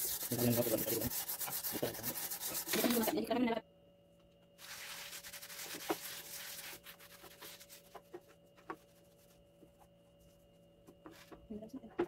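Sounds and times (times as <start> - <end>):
scouring pad scrubbing metal plate: 0.0 - 3.2.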